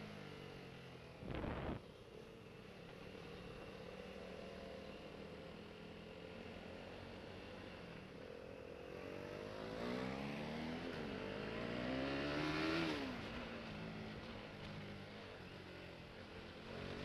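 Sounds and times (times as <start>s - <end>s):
motorcycle engine accelerating: 1.2s - 1.9s.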